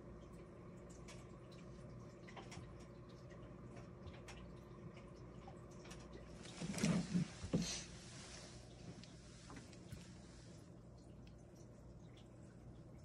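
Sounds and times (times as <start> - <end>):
faint ticks and drips: 0.0 - 6.9, 8.3 - 13.0
washing machine low hum: 0.0 - 13.0
thumps and rustling: 6.4 - 7.9.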